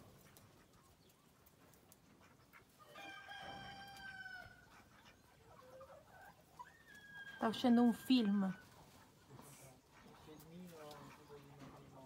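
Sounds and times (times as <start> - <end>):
faint rooster crow: 2.8 - 4.7, 6.6 - 8.4.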